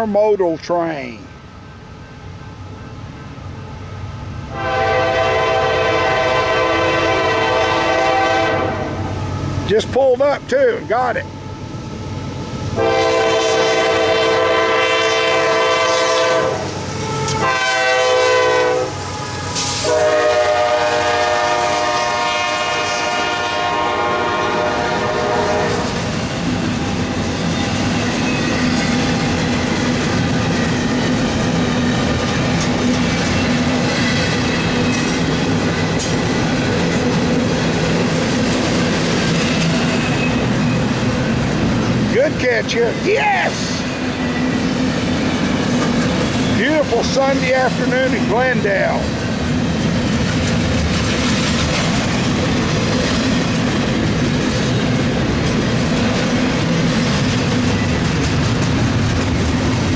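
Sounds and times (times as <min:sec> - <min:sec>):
freight cars rumbling on rails: 0:00.0 - 0:59.9
locomotive air horn: 0:04.5 - 0:09.1, 0:12.8 - 0:19.0, 0:19.6 - 0:26.0.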